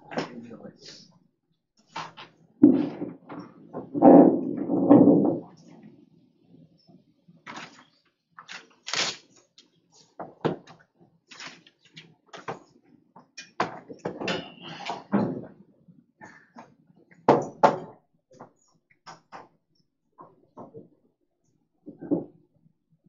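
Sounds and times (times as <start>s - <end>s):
rustling: 8.4s - 9.3s.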